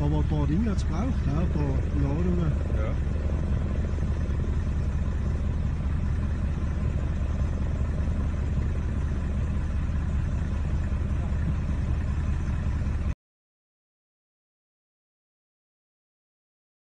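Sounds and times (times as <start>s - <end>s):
avalanche rumble: 0.0s - 13.1s.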